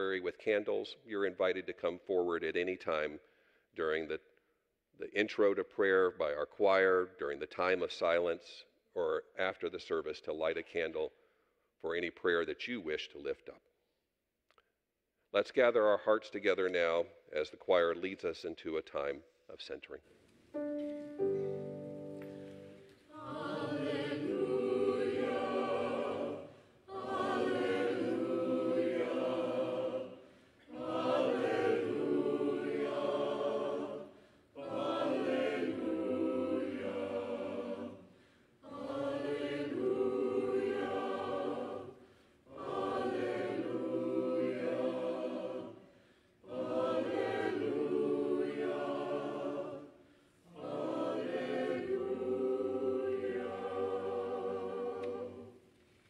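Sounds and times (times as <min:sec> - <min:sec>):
church choir singing: 0:00.0 - 0:03.1, 0:20.5 - 0:55.9.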